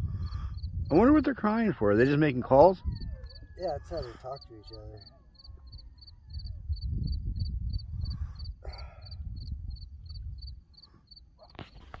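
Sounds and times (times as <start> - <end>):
faint coyote howls: 2.8 - 6.7.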